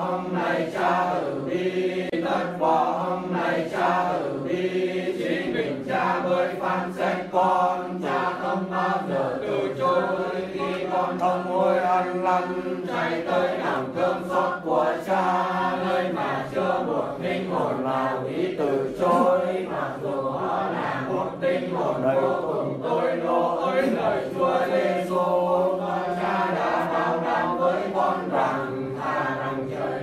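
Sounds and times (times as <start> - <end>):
person chanting a prayer: 0.0 - 30.0.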